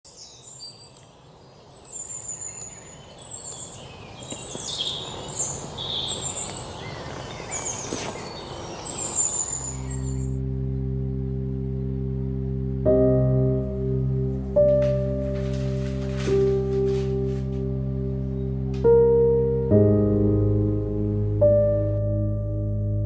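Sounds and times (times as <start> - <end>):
birds chirping: 0.0 - 12.3
held music chord: 8.6 - 23.0.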